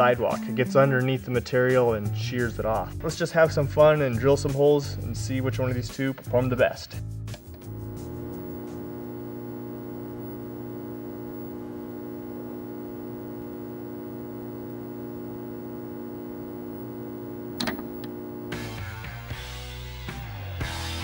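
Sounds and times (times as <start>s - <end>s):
electrical mains hum: 7.4s - 19.0s.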